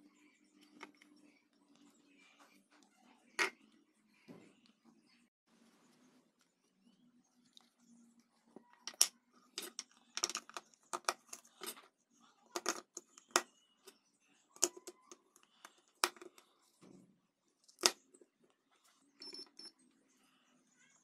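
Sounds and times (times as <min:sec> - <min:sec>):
battery cells clicking and knocking: 0:08.8 - 0:11.8, 0:12.5 - 0:13.5, 0:14.6 - 0:16.4, 0:19.2 - 0:19.7.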